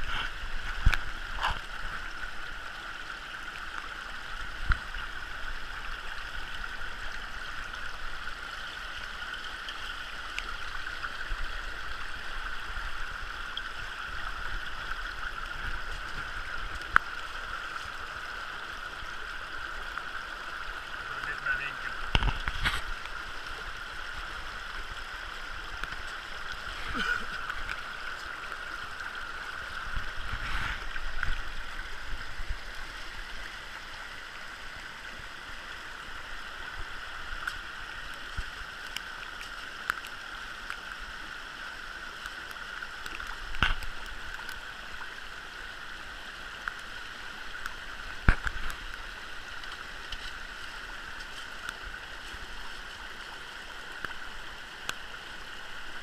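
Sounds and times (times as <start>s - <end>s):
stream water rushing over rocks: 0.0s - 56.0s.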